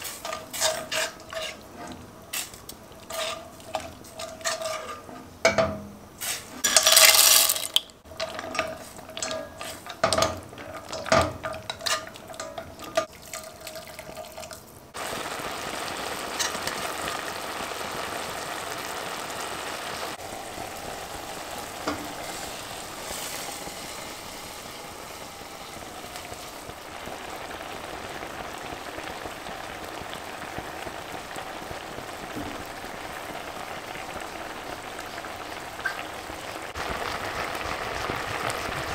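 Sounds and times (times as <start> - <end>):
spoon scraping metal pot: 0.0 - 5.3, 8.2 - 13.1
pot sizzling and bubbling: 0.0 - 38.9.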